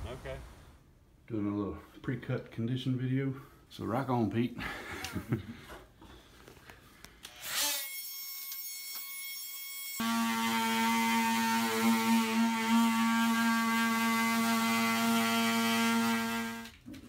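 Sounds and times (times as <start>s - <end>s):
power cutting tool whining: 7.3s - 16.7s.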